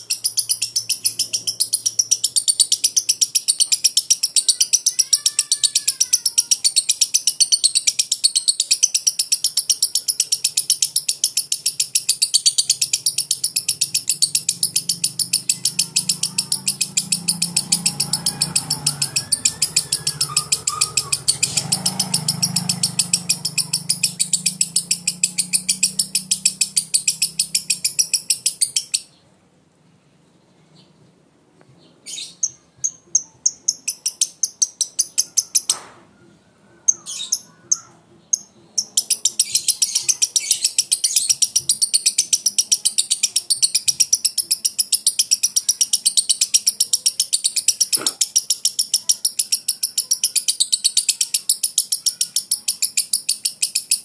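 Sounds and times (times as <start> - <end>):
lovebird chattering trill: 0.0 - 29.2, 32.1 - 35.8, 36.7 - 54.0.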